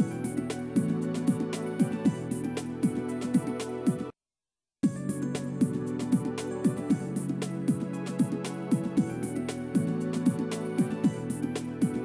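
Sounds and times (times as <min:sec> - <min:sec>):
electronic music with bass thumps: 0:00.0 - 0:04.1, 0:04.8 - 0:12.0.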